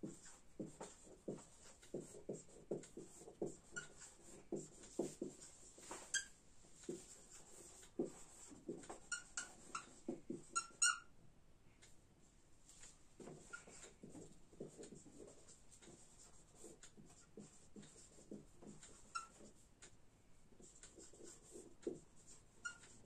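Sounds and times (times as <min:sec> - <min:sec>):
marker scratching on whiteboard: 0:00.0 - 0:11.1, 0:12.8 - 0:19.7, 0:20.5 - 0:23.0
marker squeaks: 0:00.2 - 0:11.1, 0:13.4 - 0:13.9, 0:17.4 - 0:19.6, 0:21.0 - 0:23.0.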